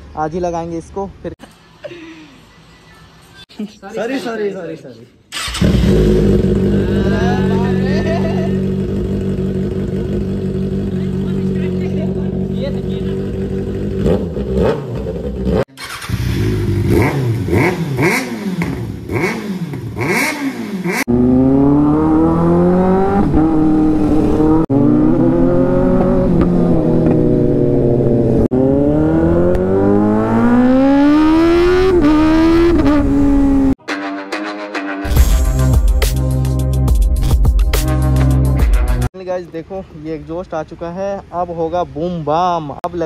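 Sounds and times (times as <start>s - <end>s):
motorcycle engine revving: 5.3s - 33.8s
motorcycle accelerating hard: 5.4s - 33.8s.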